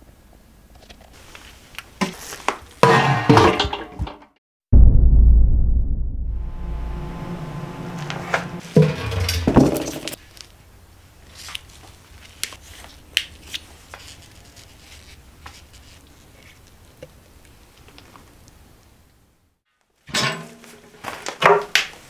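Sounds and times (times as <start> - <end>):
low musical boom: 4.7 - 8.6
plastic and foil tape crinkling: 11.2 - 16.8.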